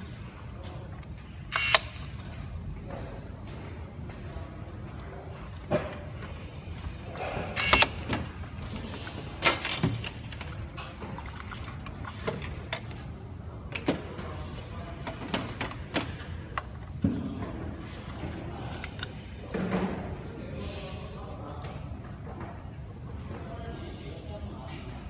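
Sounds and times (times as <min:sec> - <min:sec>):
plastic parts clicking and knocking: 0:05.7 - 0:13.1.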